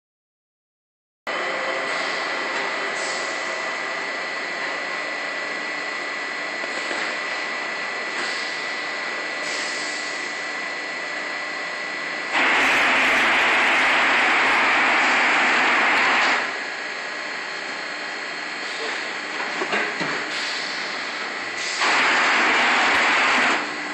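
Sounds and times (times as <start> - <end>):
machine humming with high whine: 1.3 - 23.9
loud rush of air: 12.3 - 16.5, 21.6 - 23.6.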